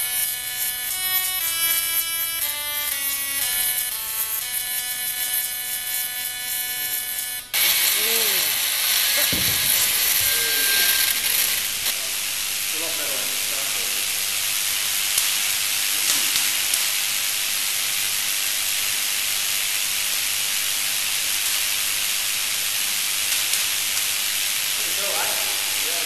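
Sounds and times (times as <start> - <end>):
faint electric crackles: 0.0 - 26.0
high electric hiss: 0.0 - 26.0.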